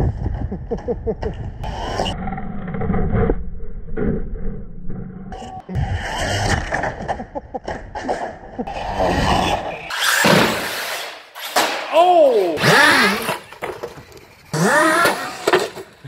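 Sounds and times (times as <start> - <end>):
pitched sound bending up and down: 0.0 - 7.2
rc truck crashing and tumbling: 5.8 - 16.0.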